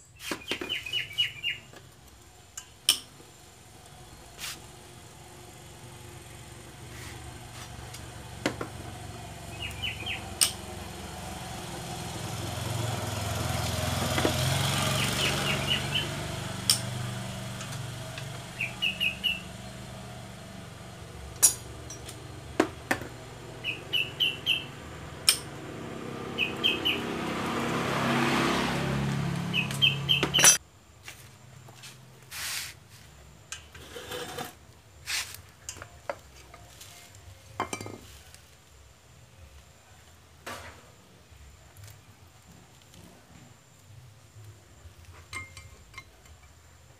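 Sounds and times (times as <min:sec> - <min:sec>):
small birds chirping: 0:00.0 - 0:01.8, 0:08.8 - 0:10.6, 0:14.8 - 0:16.8, 0:17.7 - 0:19.9, 0:23.5 - 0:24.9, 0:26.2 - 0:27.3, 0:29.3 - 0:30.6
vehicle engine hum: 0:00.4 - 0:37.6
metal tools clinking on engine parts: 0:21.4 - 0:22.2, 0:30.2 - 0:30.6, 0:45.2 - 0:46.6.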